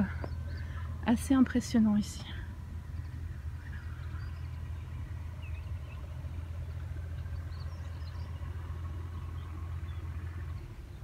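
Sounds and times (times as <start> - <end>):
faint bird chirps: 0.0 - 1.1, 2.2 - 11.0
low rumble of outdoor ambience: 0.0 - 11.0.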